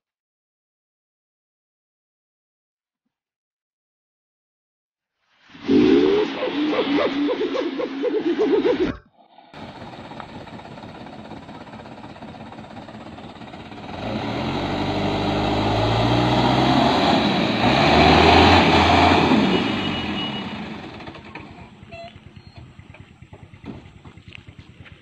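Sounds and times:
diesel truck engine under load: 9.6 - 25.0.

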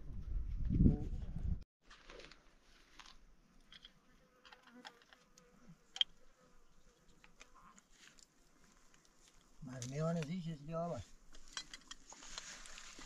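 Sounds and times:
flying insect buzzing: 3.9 - 8.3.

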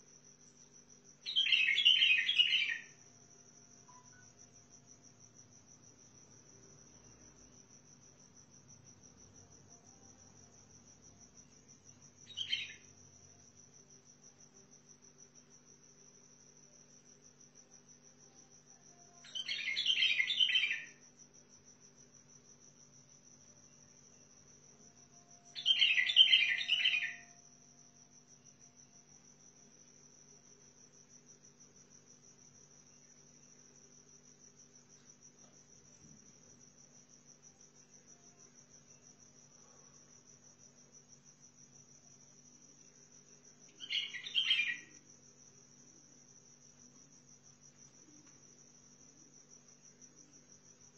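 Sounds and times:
bird singing: 1.3 - 3.0, 12.3 - 12.9, 19.1 - 21.0, 25.4 - 27.4, 43.7 - 45.0.

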